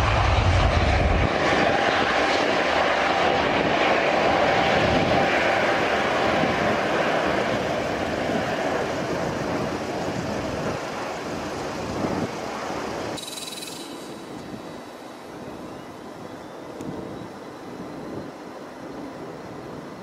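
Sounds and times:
jet engine climbing: 0.0s - 20.0s.

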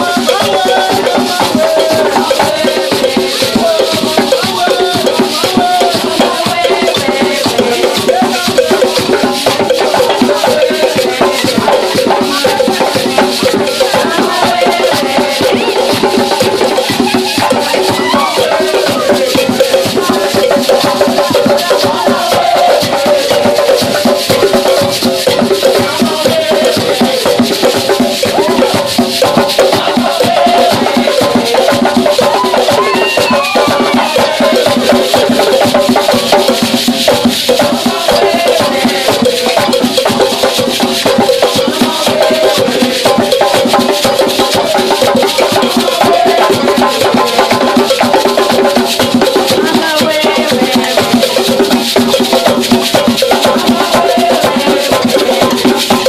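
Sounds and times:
gourd shakers rattling: 0.0s - 56.0s
hand drums playing: 0.0s - 56.0s
voices singing: 0.0s - 56.0s.

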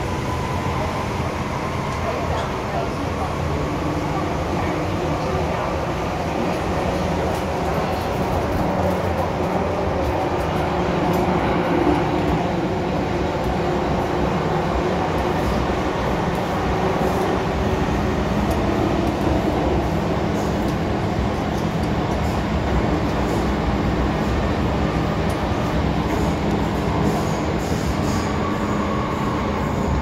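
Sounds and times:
train rumbling through tunnel: 0.0s - 30.0s.

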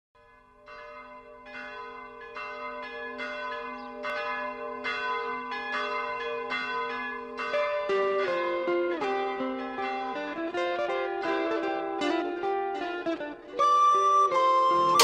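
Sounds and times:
bells ringing: 0.2s - 11.0s.

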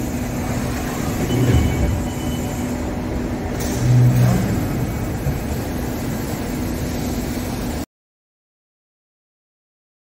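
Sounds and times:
machining centre running: 0.0s - 7.9s
coolant spraying hiss: 2.4s - 7.8s.

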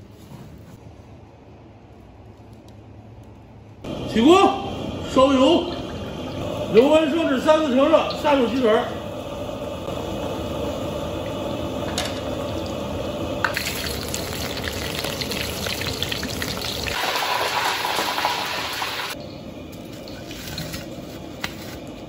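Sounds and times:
oil sizzling and bubbling: 4.8s - 21.2s.

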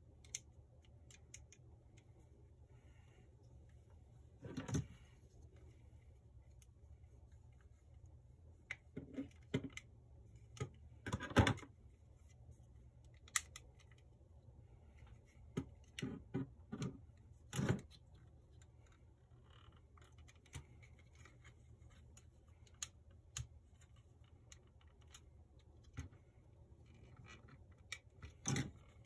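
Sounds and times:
plastic parts clicking together: 0.1s - 2.0s, 13.0s - 14.1s.

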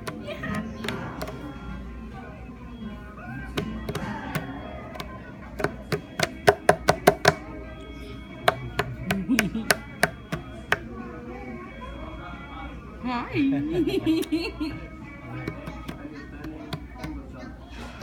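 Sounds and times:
hands slapping a tabletop: 3.6s - 7.4s, 8.5s - 10.8s.

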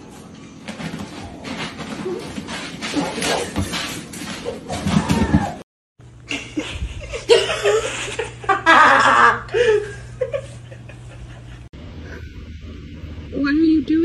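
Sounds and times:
low steady hum: 0.0s - 14.0s
people laughing: 6.3s - 11.7s.

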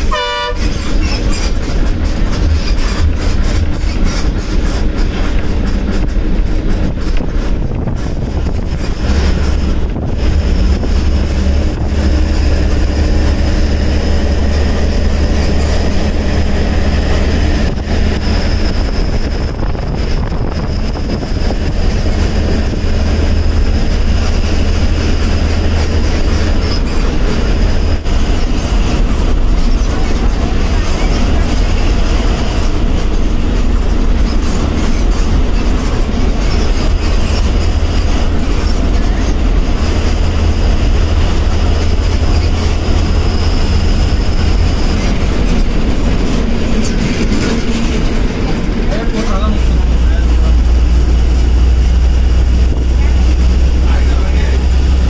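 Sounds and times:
bus engine deep rumble: 0.0s - 55.0s.

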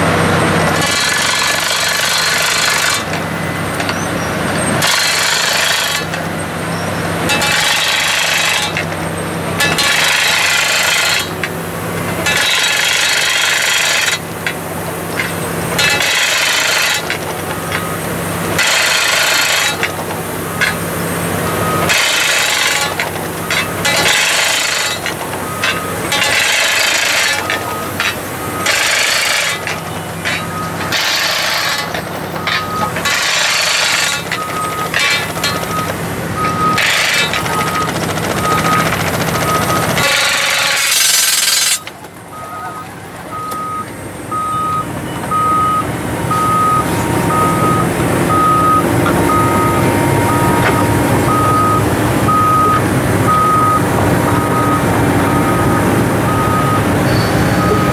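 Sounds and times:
engine humming: 0.0s - 57.9s
drilling rig harsh noise bursts: 15.4s - 42.0s.

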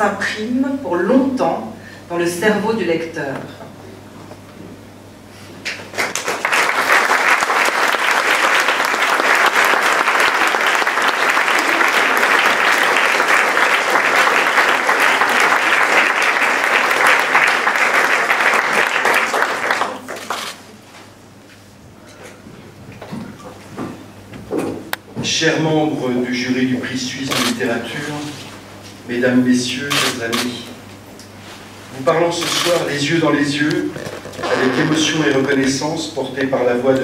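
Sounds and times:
audience applauding: 5.9s - 20.5s.

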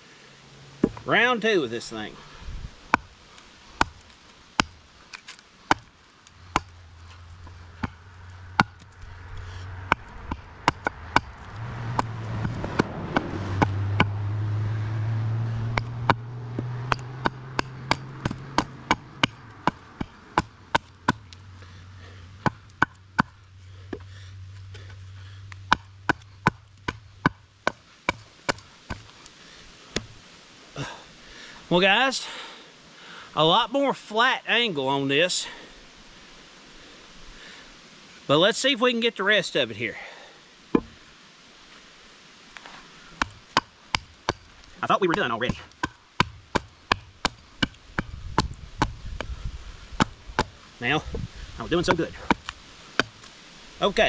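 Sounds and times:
hatchet chopping wood: 0.8s - 1.0s, 2.9s - 3.2s, 3.8s - 8.9s, 9.8s - 14.4s, 15.6s - 21.4s, 22.4s - 24.1s, 24.8s - 29.2s, 29.9s - 30.2s, 40.8s - 41.0s, 43.2s - 50.6s, 51.8s - 53.3s
low steady drone: 6.2s - 27.6s.

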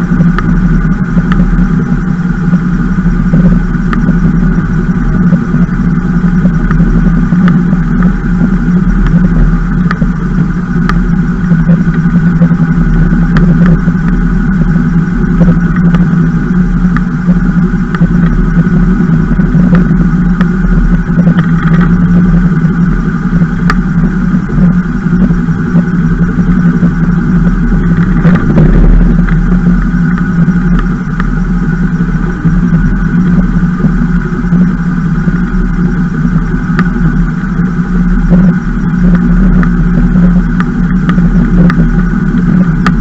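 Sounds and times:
gyroglider rotor drone: 0.0s - 43.0s.

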